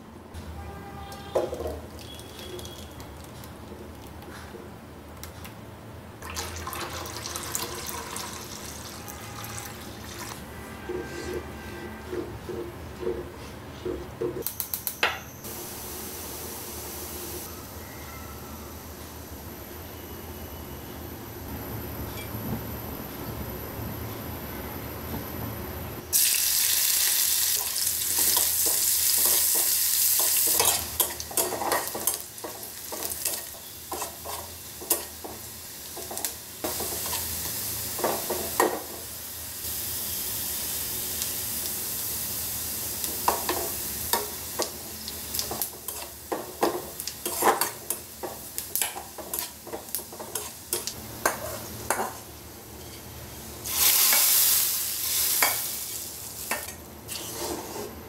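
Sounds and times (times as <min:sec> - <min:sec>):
hot oil poured sizzling: 0:06.2 - 0:10.4, 0:26.1 - 0:51.0, 0:53.6 - 0:57.4
onion sizzling in hot oil: 0:06.2 - 0:10.4, 0:15.5 - 0:17.6, 0:26.1 - 0:57.9
metal spatula scraping pan: 0:10.7 - 0:12.6, 0:56.5 - 0:58.0.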